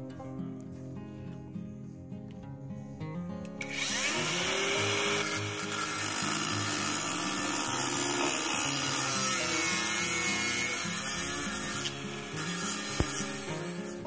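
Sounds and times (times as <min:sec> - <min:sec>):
background music: 0:00.0 - 0:14.0
cordless drill boring into wood: 0:03.6 - 0:14.0.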